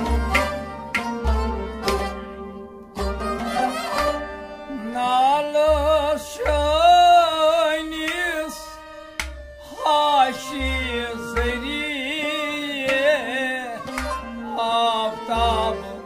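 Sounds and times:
harmonium chords: 0.0s - 16.0s
man singing: 4.7s - 9.0s, 9.6s - 16.0s.

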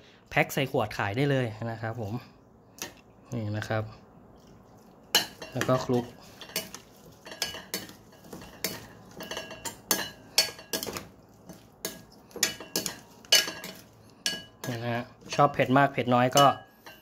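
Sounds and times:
spoon scraping ceramic bowl: 4.4s - 15.6s.

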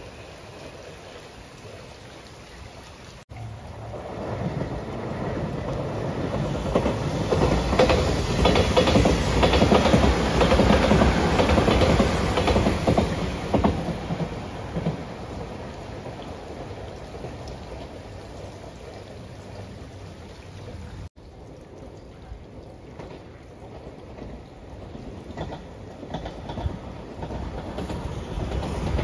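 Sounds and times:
steady rain: 0.0s - 29.0s
train passing at speed: 3.3s - 20.1s, 22.5s - 29.0s
wheels clicking over rail joints: 3.9s - 18.2s, 21.9s - 29.0s.

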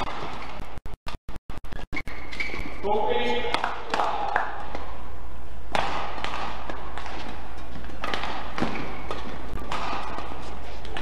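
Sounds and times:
rackets hitting shuttlecock: 3.4s - 5.0s, 5.7s - 11.0s.

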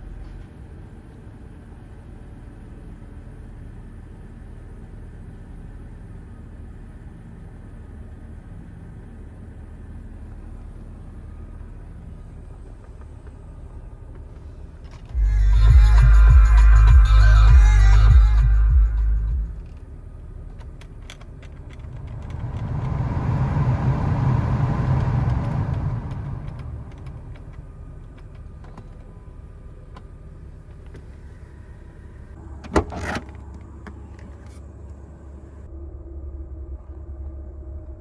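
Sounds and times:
car stereo music: 15.2s - 19.8s
blower fan rushing air: 21.5s - 28.4s.

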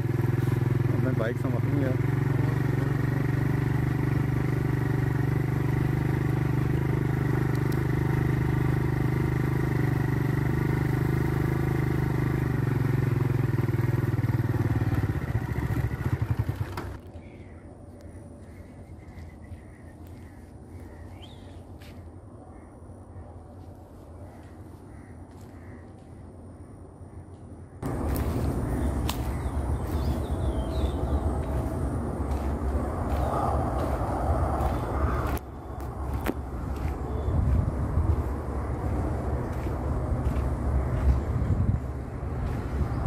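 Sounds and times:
motorcycle engine running: 0.0s - 17.6s, 27.8s - 43.0s.

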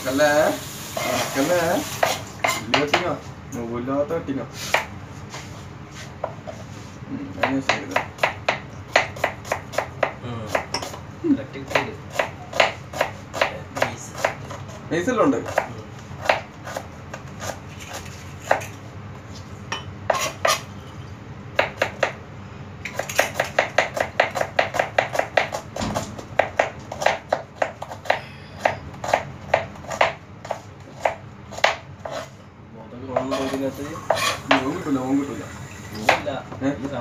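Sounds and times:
knife chopping on plastic board: 7.4s - 11.0s, 11.7s - 14.6s, 15.4s - 17.6s, 21.6s - 22.2s, 22.9s - 32.3s.

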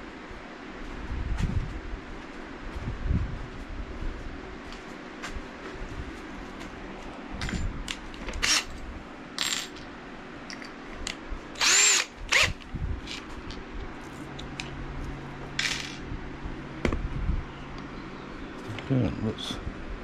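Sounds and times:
cordless drill motor whining: 8.4s - 8.7s, 11.6s - 13.2s.

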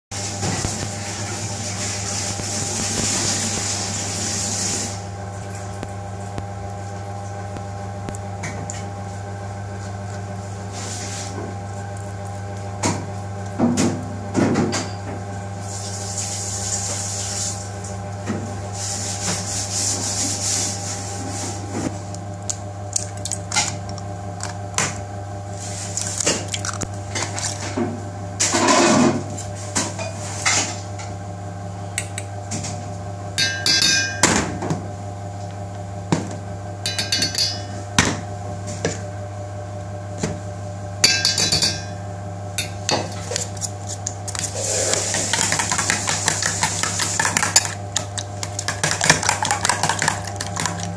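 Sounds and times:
utensils clinking on metal bowl: 33.4s - 34.3s, 36.9s - 37.8s, 41.0s - 42.0s, 42.6s - 50.9s
spoon beating eggs in bowl: 36.9s - 37.6s, 41.0s - 41.9s, 42.6s - 50.9s.

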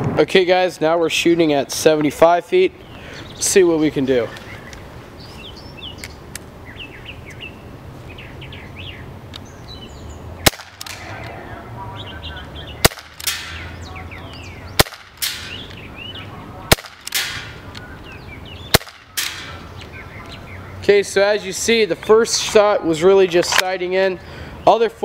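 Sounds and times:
airsoft pistol pops: 10.4s - 11.1s, 12.8s - 13.6s, 14.8s - 15.6s, 16.7s - 17.5s, 18.7s - 19.4s.

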